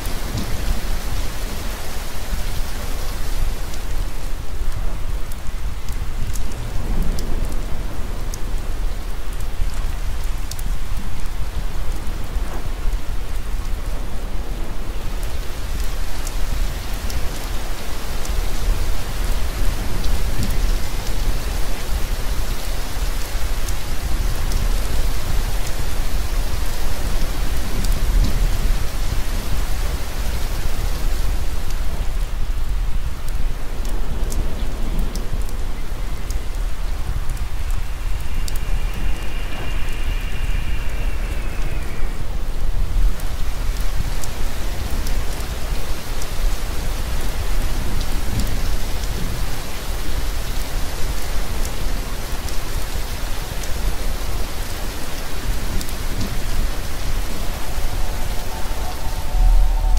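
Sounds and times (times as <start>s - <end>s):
heavy rain: 0.0s - 59.9s
deep low rumble: 55.7s - 59.9s
thin high tone: 56.6s - 59.9s.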